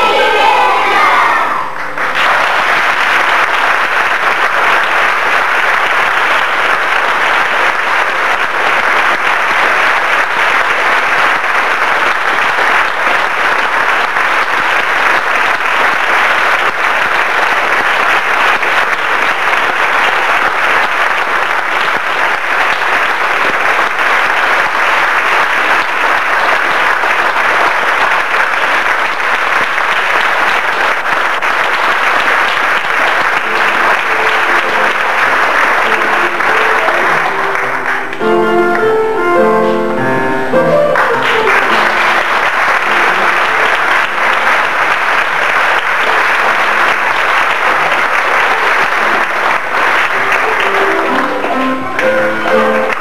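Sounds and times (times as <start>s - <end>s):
audience applause: 0.0s - 40.0s, 40.7s - 53.0s.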